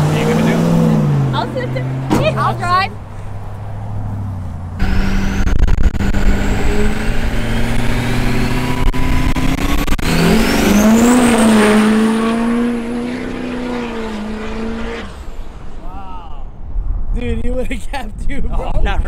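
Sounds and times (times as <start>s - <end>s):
diesel engine full-throttle pull: 0.0s - 3.4s, 4.1s - 15.6s.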